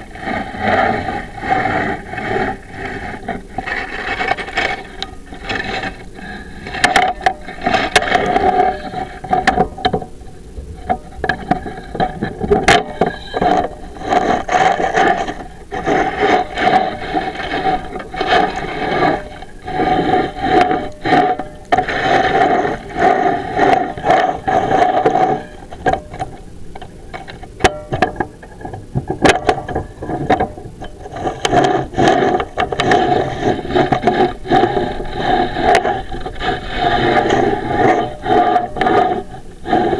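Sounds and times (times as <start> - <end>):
camera scraping inside flue: 0.0 - 39.9
sharp clicks and knocks: 23.6 - 34.2.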